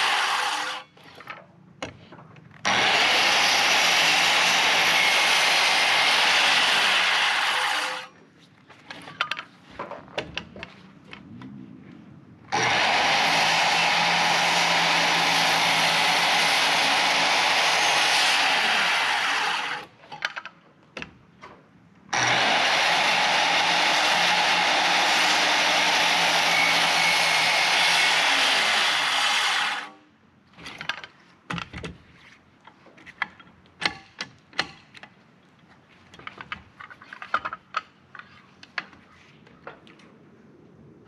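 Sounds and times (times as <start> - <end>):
circular saw cutting wood: 0.0 - 0.9, 2.6 - 8.1, 12.5 - 19.9, 22.1 - 30.0.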